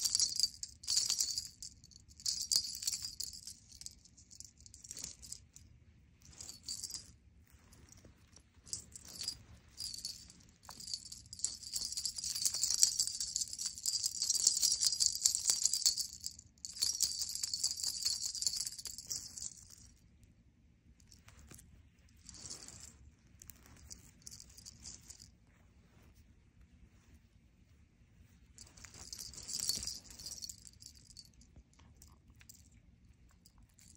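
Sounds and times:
jingle bell jingling: 0.0s - 5.6s, 6.2s - 20.0s, 22.2s - 23.0s, 23.6s - 25.3s, 28.6s - 31.4s.

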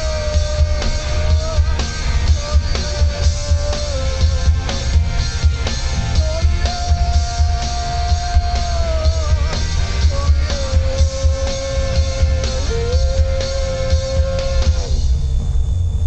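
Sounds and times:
live rock band playing: 0.0s - 15.1s
long bending held notes: 0.0s - 16.0s.

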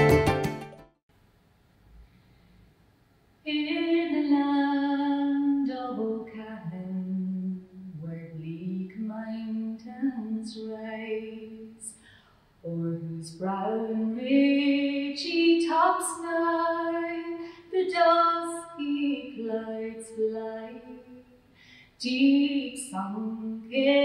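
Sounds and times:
woman singing unaccompanied: 3.5s - 12.0s, 12.6s - 21.4s, 22.0s - 24.0s.

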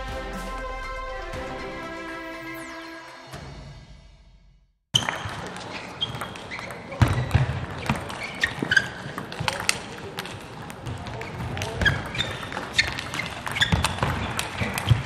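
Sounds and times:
shoes squeaking on floor: 5.0s - 15.0s.

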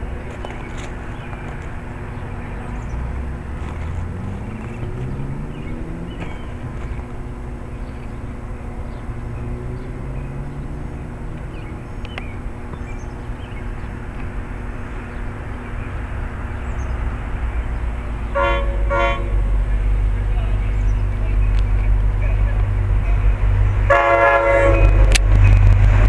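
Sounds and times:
diesel locomotive engine rumble: 0.0s - 26.0s
train horn blasts: 18.3s - 19.5s, 23.8s - 25.2s.

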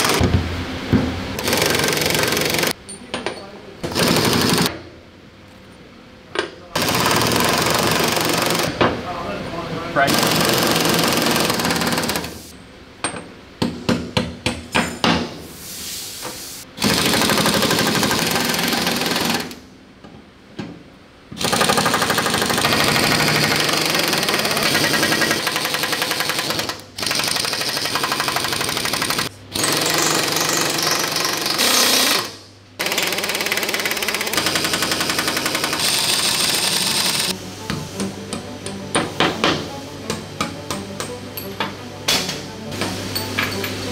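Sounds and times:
impact wrench hammering: 13.0s - 15.4s, 21.4s - 43.7s.

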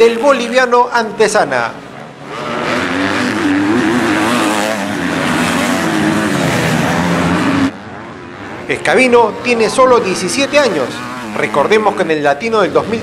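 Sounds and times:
motocross bike engines racing: 0.0s - 13.0s.

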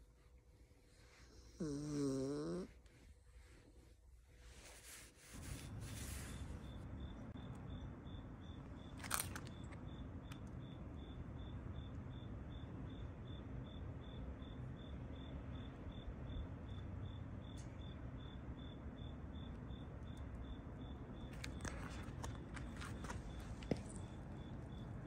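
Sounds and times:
cricket chirping: 5.4s - 25.0s.

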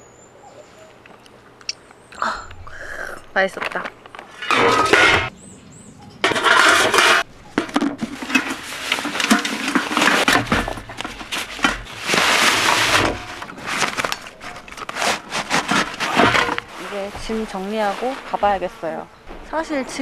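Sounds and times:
metal pots clinking: 4.3s - 5.3s, 6.2s - 14.9s, 15.6s - 17.3s
nylon sack rustling: 8.2s - 18.8s.

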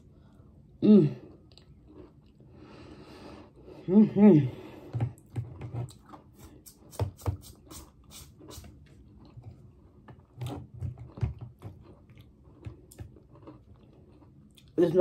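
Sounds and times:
mouth chewing sounds: 10.4s - 15.0s.

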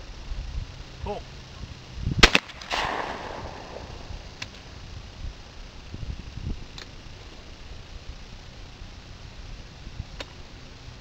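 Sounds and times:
shotgun shot echo: 2.2s - 4.4s.

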